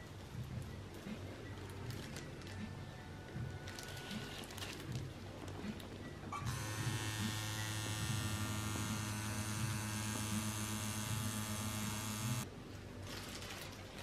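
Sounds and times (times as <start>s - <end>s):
tattoo machine buzzing: 6.4s - 12.4s.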